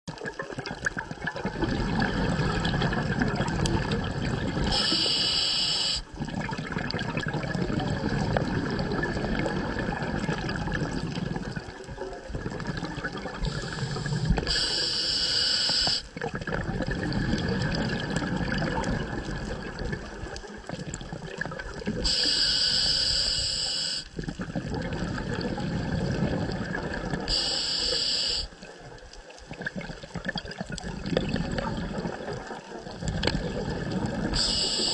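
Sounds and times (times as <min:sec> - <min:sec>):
exhaled air bubbling: 0:00.1 - 0:34.9
regulator hissing inhalations: 0:04.7 - 0:06.1, 0:13.5 - 0:16.1, 0:22.0 - 0:24.2, 0:27.3 - 0:28.6, 0:34.3 - 0:34.9.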